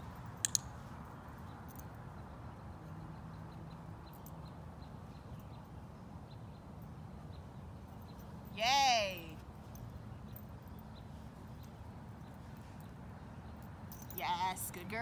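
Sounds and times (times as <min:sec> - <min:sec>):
faint light ticks: 0:00.4 - 0:00.7.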